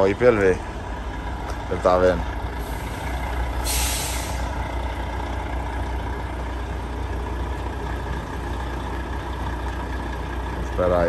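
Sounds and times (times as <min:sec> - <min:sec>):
diesel truck engine idling: 0:00.0 - 0:11.0
air hiss: 0:02.6 - 0:04.6.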